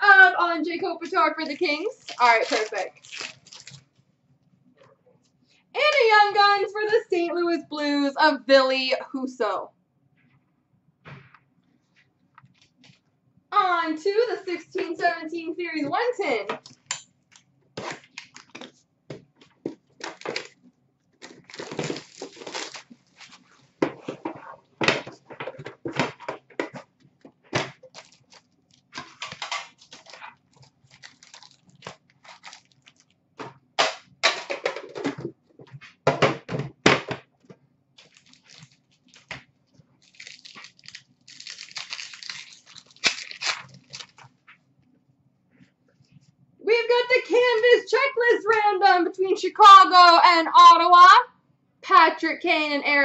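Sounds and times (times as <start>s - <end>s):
foil wrappers crinkling: 1.2s - 3.9s, 17.8s - 18.8s, 19.5s - 20.6s, 21.2s - 24.7s, 27.3s - 33.2s, 38.0s - 44.4s
cards shuffling: 40.0s - 44.4s.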